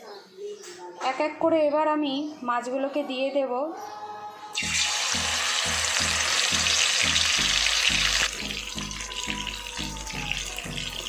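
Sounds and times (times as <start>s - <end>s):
fish sizzling in hot oil: 4.6s - 11.0s
oil bubbling: 4.6s - 11.0s.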